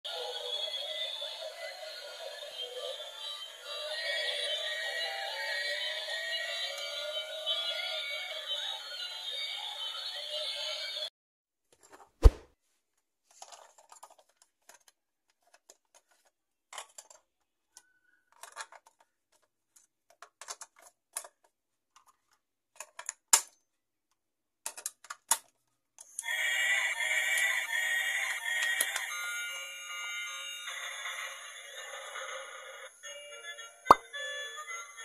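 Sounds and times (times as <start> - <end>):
plastic toy parts clattering: 13.3 - 23.7, 24.6 - 26.1.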